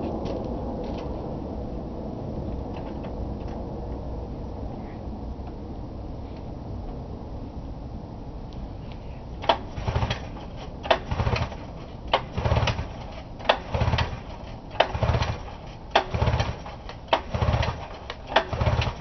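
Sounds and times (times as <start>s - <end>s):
engine spinning over whirr: 9.4s - 19.0s
recoil starter cord pulls: 9.4s - 19.0s.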